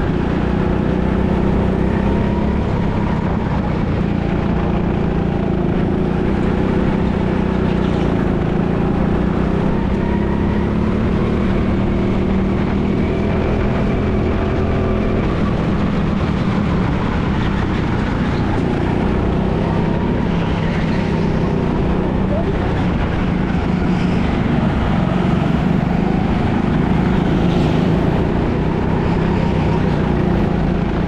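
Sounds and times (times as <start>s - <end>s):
go-kart motor running: 0.0s - 31.0s.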